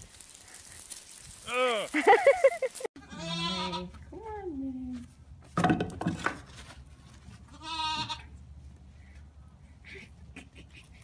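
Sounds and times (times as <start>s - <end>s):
goat bleating: 3.0s - 4.0s, 7.5s - 8.3s.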